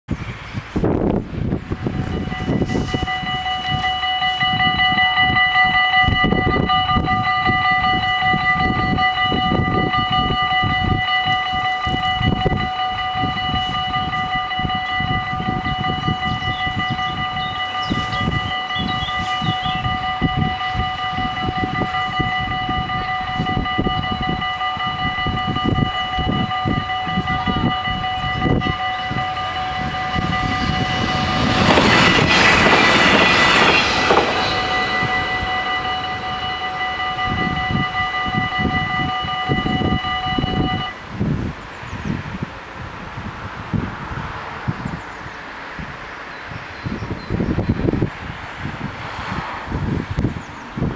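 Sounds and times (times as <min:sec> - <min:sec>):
crossing warning bells ringing: 0:00.8 - 0:50.9
low rumble: 0:27.2 - 0:39.2.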